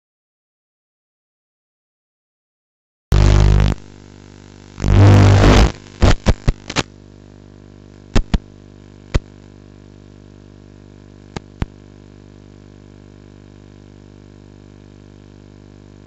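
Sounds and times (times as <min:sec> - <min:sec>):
electrical hum: 0:03.1 - 0:09.4
short sharp clicks: 0:05.0 - 0:06.9, 0:08.2 - 0:08.4.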